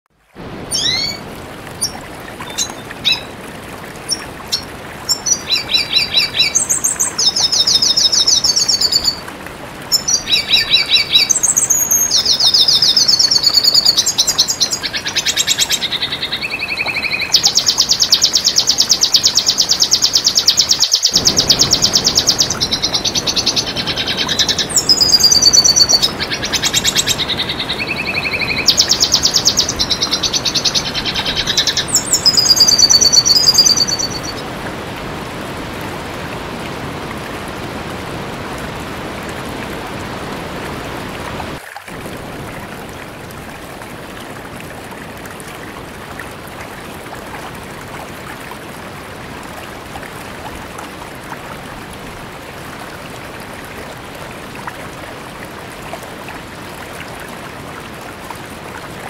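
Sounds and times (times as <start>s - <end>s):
bird singing twittering trills: 16.4s - 34.4s.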